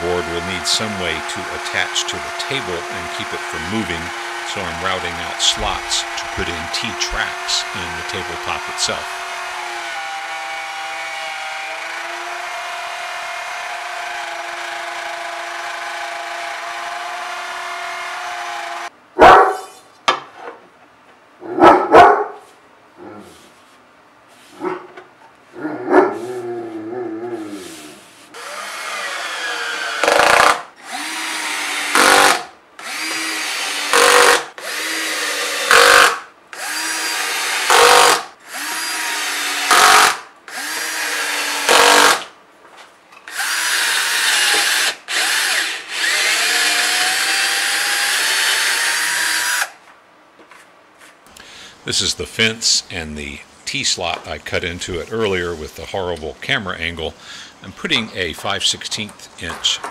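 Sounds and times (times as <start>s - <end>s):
router cutting wood: 0.0s - 18.9s, 28.4s - 42.3s, 43.3s - 49.8s
cordless drill driving screws: 1.2s - 18.9s, 28.4s - 42.3s, 43.3s - 49.8s.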